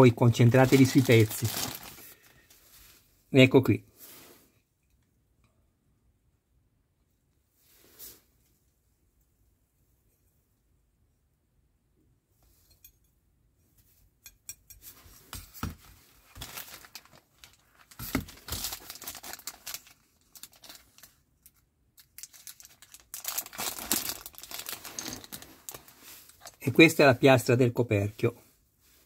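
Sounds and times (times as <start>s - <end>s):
plastic bag crinkling and tearing: 0.2s - 2.5s, 16.2s - 26.6s.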